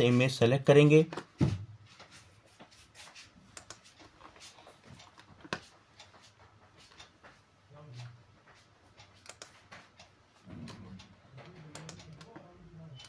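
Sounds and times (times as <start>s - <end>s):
computer mouse clicks: 3.5s - 6.3s, 9.0s - 13.0s.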